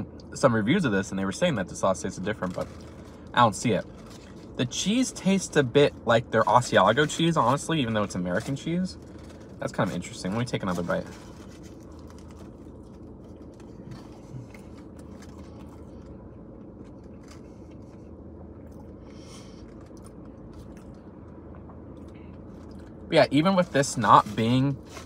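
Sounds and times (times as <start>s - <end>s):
car cabin hum: 0.0s - 25.0s
person chewing crispy food: 10.4s - 21.1s.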